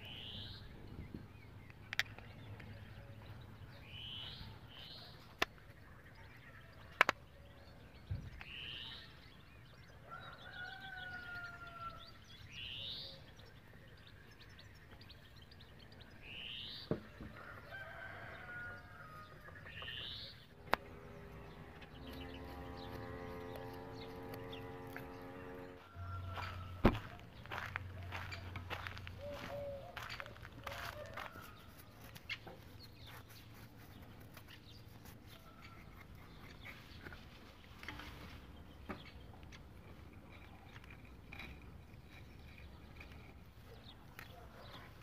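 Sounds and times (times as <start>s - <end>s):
small bird chirping: 0.0s - 9.9s, 19.4s - 25.6s
rooster crowing: 10.1s - 12.1s, 17.4s - 19.4s, 22.1s - 28.2s, 28.8s - 31.8s
steady hum: 20.5s - 30.1s.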